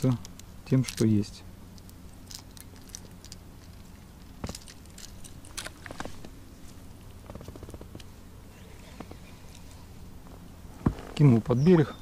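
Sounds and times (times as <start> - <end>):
fishing tackle clicks and rustles: 0.0 - 6.4.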